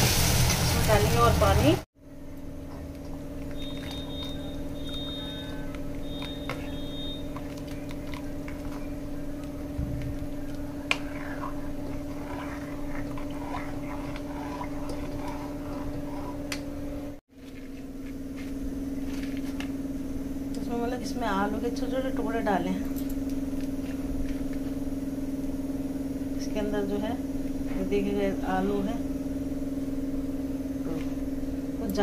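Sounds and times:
low hum: 1.4s - 26.6s
ladle scraping metal pan: 10.9s - 16.5s.

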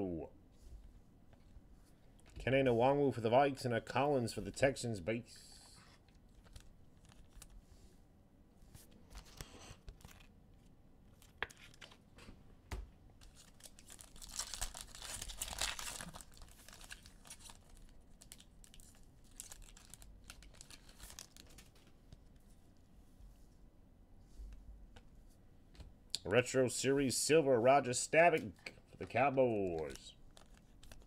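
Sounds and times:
wrapper crinkling: 13.2s - 22.0s, 29.6s - 31.0s.

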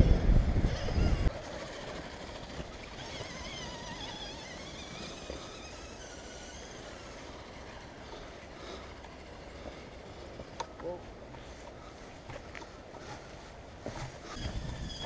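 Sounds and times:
wind rumble: 0.0s - 1.4s, 14.2s - 15.0s
electric motor whining: 0.0s - 10.6s.

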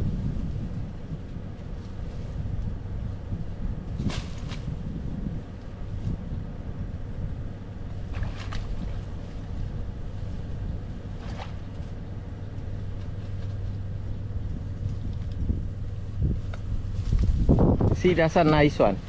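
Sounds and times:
low drone: 0.0s - 17.8s
reeds rustling: 0.0s - 19.0s.

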